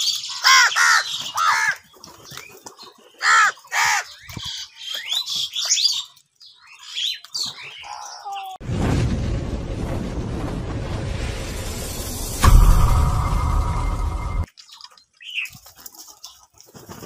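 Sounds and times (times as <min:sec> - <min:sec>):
crows cawing: 0:00.3 - 0:01.8, 0:03.2 - 0:04.1
rushing rumbling sound effect: 0:08.6 - 0:14.5.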